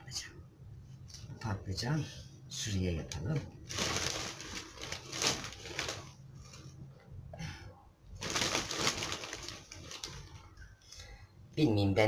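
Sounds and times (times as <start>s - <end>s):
plastic bag rustling: 3.6s - 6.8s, 8.2s - 10.6s.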